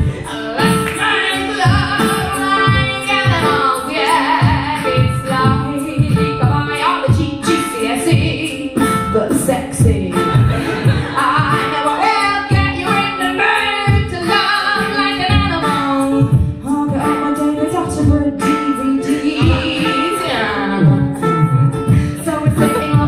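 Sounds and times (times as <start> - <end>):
man beatboxing: 0.0 - 5.1, 10.2 - 12.8, 19.1 - 23.0
woman singing: 0.0 - 21.3, 21.9 - 23.0.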